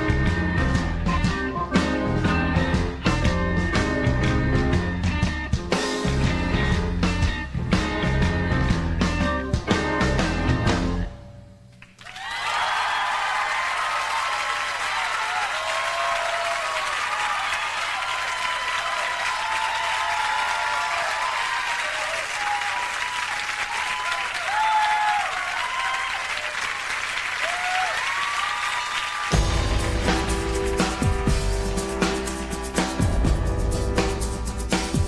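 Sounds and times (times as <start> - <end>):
audience applauding and cheering: 11.8 - 33.9
shouts from audience: 12.0 - 26.8, 27.4 - 29.4.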